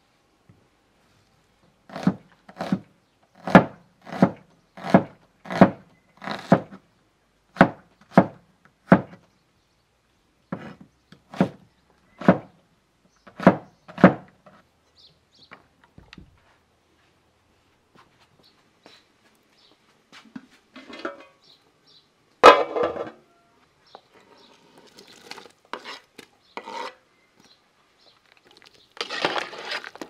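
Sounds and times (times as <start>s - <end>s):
blade chopping into wood: 3.4s - 6.8s, 7.6s - 9.2s.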